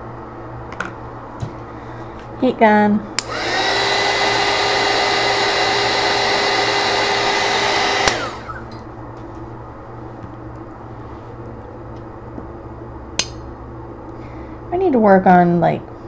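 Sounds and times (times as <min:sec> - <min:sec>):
heat gun blowing hiss and whine: 0:03.1 - 0:08.8
heat gun switch click: 0:03.2 - 0:03.4.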